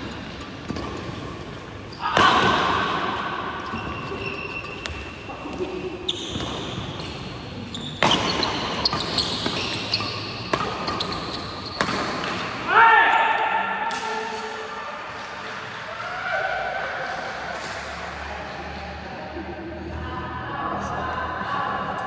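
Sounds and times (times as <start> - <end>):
shoe squeaks on court floor: 3.6 - 12.2
racket hitting shuttlecock: 8.0 - 12.6.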